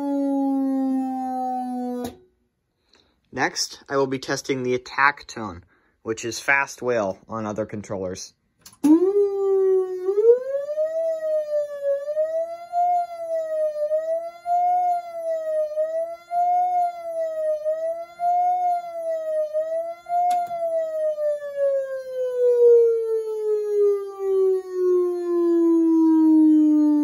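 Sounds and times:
electronic siren wailing: 0:00.0 - 0:02.3, 0:08.8 - 0:27.0.

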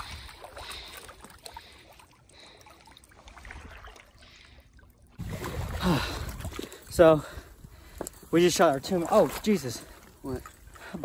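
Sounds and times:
small clicks and drips: 0:00.0 - 0:05.2, 0:07.7 - 0:11.0
water trickling and splashing: 0:00.0 - 0:11.0.

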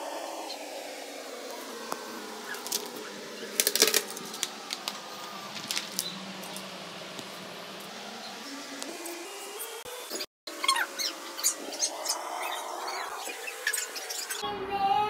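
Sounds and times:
steady background hiss: 0:00.0 - 0:09.6
clicks and knocks of handled objects: 0:03.6 - 0:06.7.

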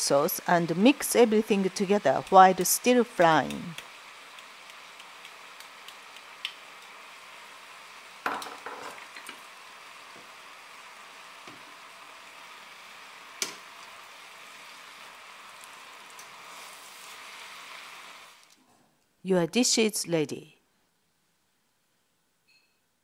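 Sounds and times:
food sizzling in a frying pan: 0:00.0 - 0:18.6
sharp knocks on a pan: 0:08.2 - 0:09.0.

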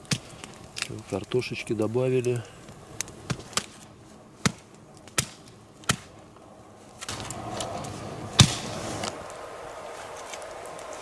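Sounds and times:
steady hissing: 0:00.0 - 0:11.0.

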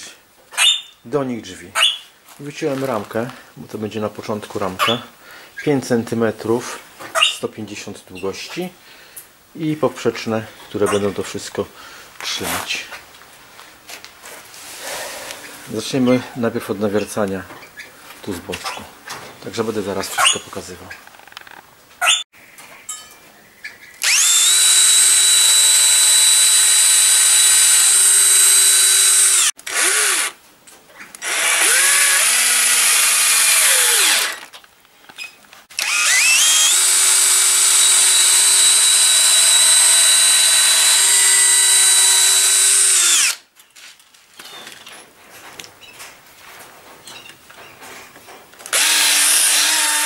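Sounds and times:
cordless drill boring into wood: 0:24.0 - 0:30.4, 0:31.2 - 0:34.6, 0:35.7 - 0:43.4, 0:48.7 - 0:50.0.

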